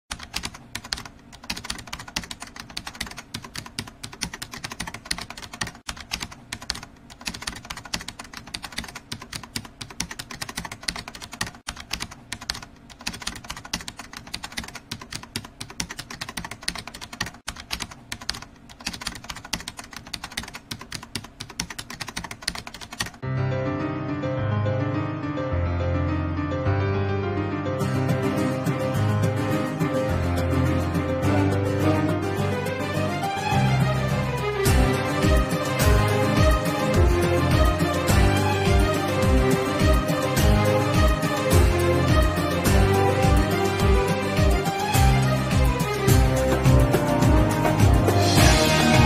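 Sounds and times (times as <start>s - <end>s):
fast keyboard typing: 0.1s - 23.2s
piano music: 23.2s - 49.0s.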